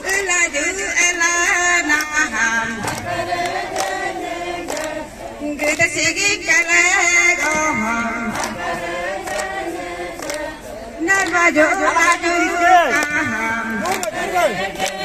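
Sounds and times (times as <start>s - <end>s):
woman singing into a microphone: 0.0s - 3.2s, 5.4s - 8.8s, 11.0s - 14.0s
group singing a chant: 0.0s - 15.0s
sharp rhythmic taps: 0.0s - 15.0s.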